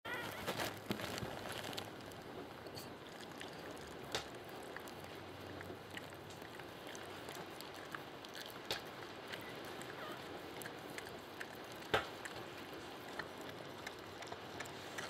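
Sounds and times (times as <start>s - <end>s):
dog licking wet smacking: 2.8s - 15.0s.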